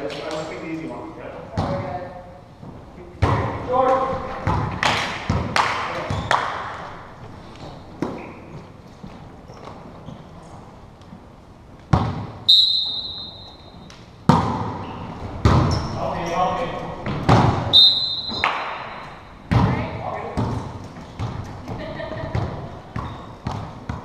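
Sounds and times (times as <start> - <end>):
volleyball hits echoing: 3.2 - 7.0, 11.9 - 15.8, 17.0 - 24.0
referee's whistle: 12.5 - 13.8, 17.7 - 18.5.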